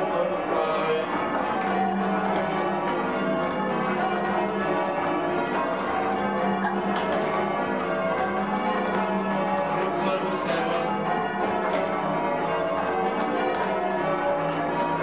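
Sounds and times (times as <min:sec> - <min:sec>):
church bells ringing: 0:00.0 - 0:15.0.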